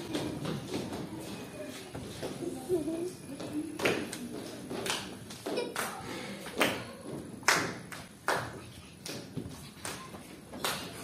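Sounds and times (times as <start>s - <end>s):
children clapping hands: 3.8s - 11.0s.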